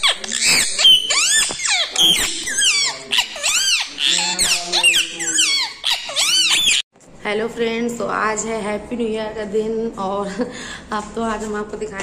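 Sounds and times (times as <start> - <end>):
parakeet squawking and chirping: 0.0 - 6.9.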